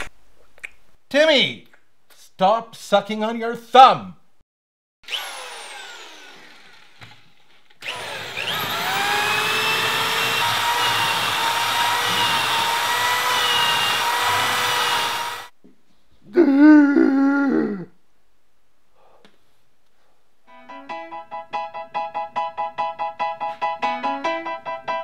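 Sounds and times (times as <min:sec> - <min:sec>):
power tool motor whirring: 0:05.1 - 0:15.5.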